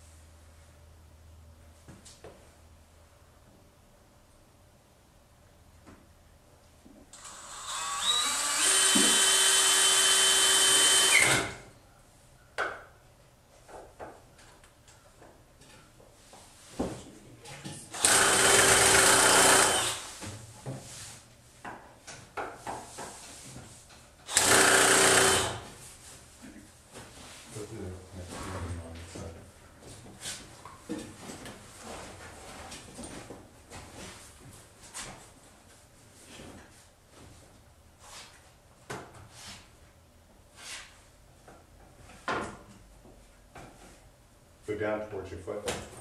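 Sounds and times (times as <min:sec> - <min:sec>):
cordless drill driving screws: 0:07.2 - 0:11.6, 0:17.9 - 0:20.1, 0:24.3 - 0:25.6.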